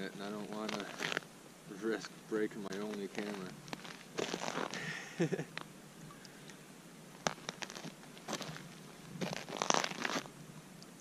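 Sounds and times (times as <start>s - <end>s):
winter jacket rustling: 0.2s - 1.2s, 2.6s - 5.4s, 7.2s - 10.3s
boots crunching on snow: 2.7s - 4.9s, 7.2s - 10.3s.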